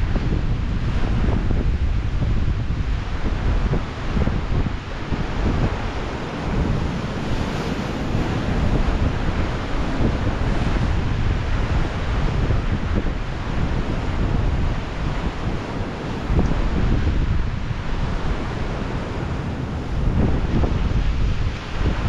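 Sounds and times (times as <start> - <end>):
ocean surf breaking on rocks: 0.0 - 22.0
wind buffeting microphone: 0.0 - 22.0.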